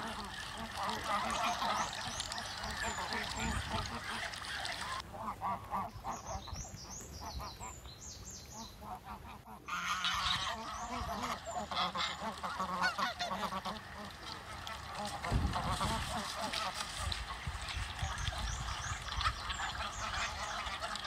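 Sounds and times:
geese honking: 0.0s - 6.5s, 8.6s - 21.0s
small birds chirping: 0.2s - 5.0s, 5.9s - 8.9s, 17.4s - 21.0s.

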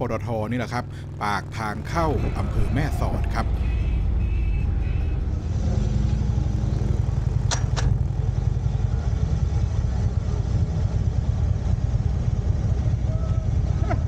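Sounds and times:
motorcycle engine rumbling: 0.0s - 14.0s.

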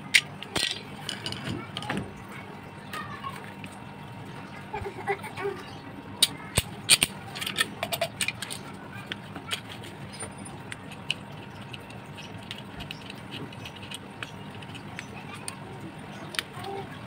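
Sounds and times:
metal bolts clicking: 6.2s - 8.6s.

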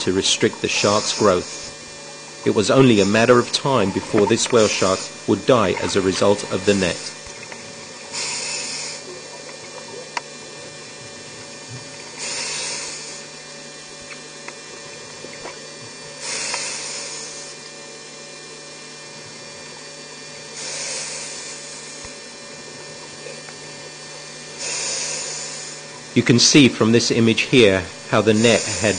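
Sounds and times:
exhaled bubbles underwater: 0.0s - 16.4s, 21.8s - 26.2s
steady low hum: 0.0s - 28.9s.

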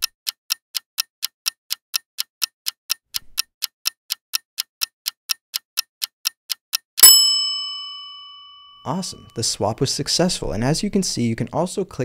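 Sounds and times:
clock ticking: 0.0s - 7.2s.

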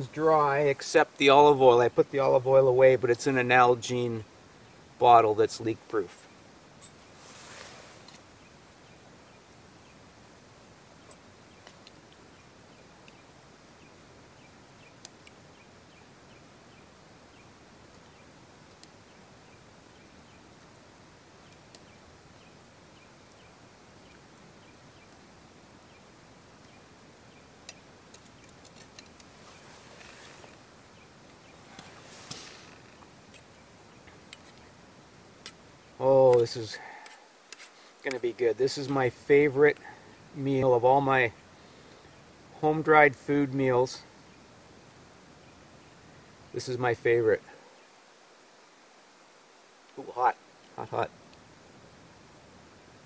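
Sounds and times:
faint outdoor hiss: 0.0s - 53.0s
brief rustling: 6.8s - 8.3s, 28.2s - 30.6s, 31.6s - 33.1s.

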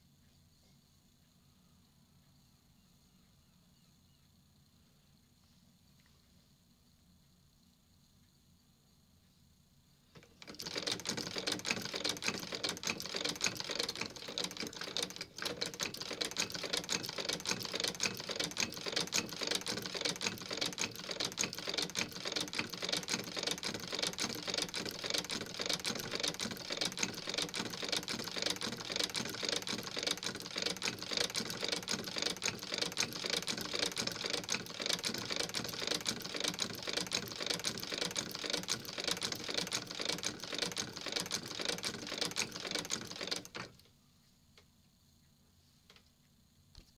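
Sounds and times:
sewing machine stitching: 10.2s - 43.9s.

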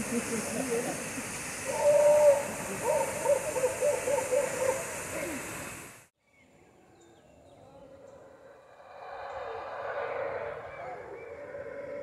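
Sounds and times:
howler monkeys howling: 1.7s - 4.9s, 7.3s - 12.0s.

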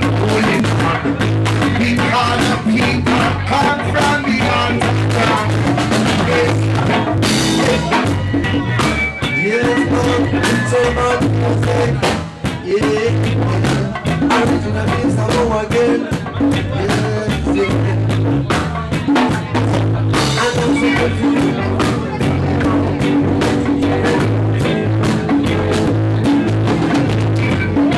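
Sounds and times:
bass line: 0.0s - 27.9s
drum kit beat: 0.0s - 27.9s
guitar: 0.0s - 27.9s
men singing into microphones: 0.0s - 27.9s.

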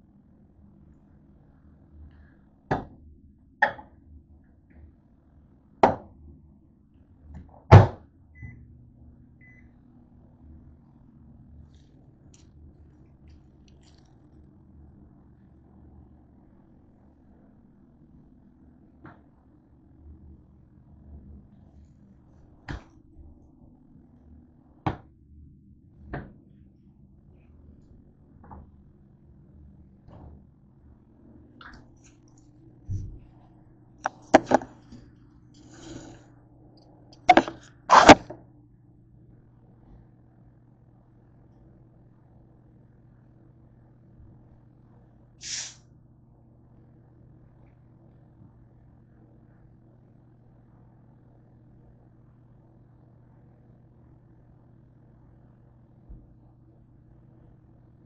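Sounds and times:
microwave oven humming: 0.0s - 58.0s
refrigerator knocks and clunks: 7.7s - 8.0s.

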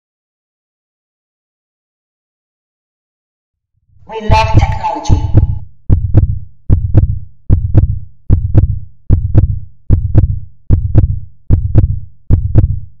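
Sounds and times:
heartbeat double thump: 4.3s - 13.0s.

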